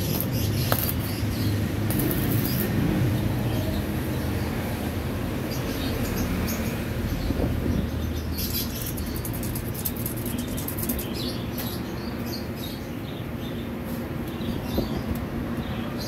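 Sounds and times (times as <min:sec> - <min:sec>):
welding arc crackling: 0:00.0 - 0:03.5.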